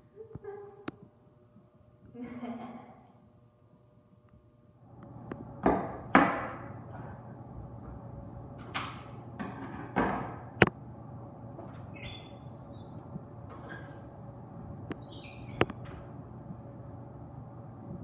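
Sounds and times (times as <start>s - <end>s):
oven door squeak: 11.8s - 14.0s, 15.0s - 15.7s.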